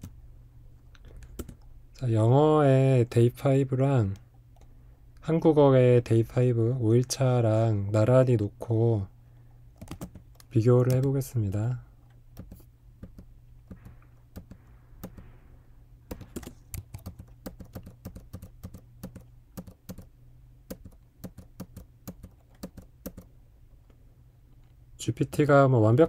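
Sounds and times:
low steady hum: 0.0 - 26.0
keyboard keys clicking: 1.0 - 1.7, 9.8 - 11.1, 12.4 - 15.2, 16.1 - 20.1, 20.7 - 23.3.

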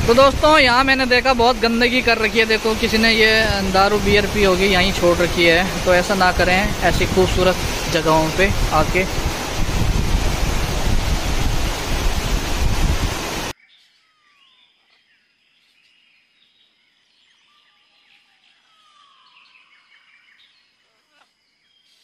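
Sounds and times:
loud rushing noise: 2.5 - 13.5
faint birdsong: 13.5 - 22.0.

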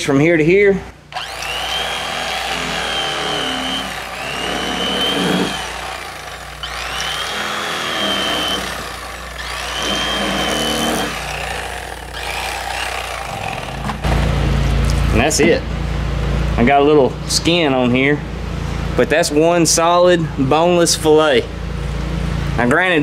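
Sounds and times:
electric knife motor whine: 1.1 - 14.2.

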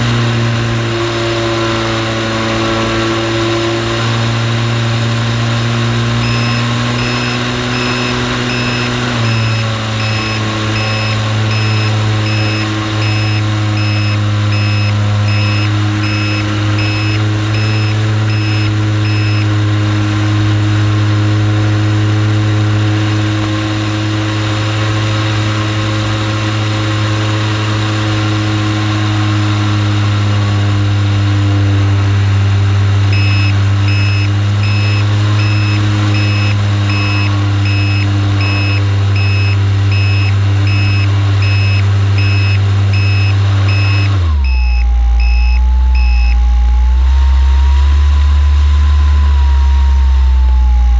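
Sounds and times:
high beeping: 6.2 - 19.5, 33.2 - 46.8.

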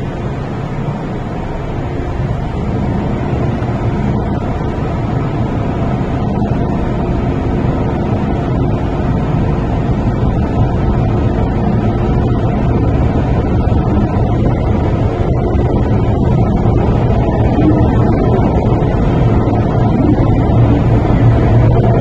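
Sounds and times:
train rumbling through tunnel: 0.0 - 22.0.

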